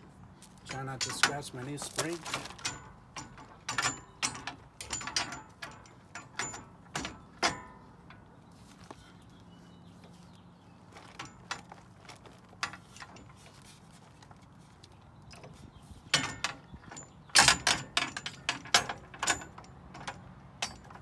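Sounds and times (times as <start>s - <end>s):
metal clinks and knocks: 0.4s - 8.3s, 10.9s - 13.6s, 15.3s - 21.0s.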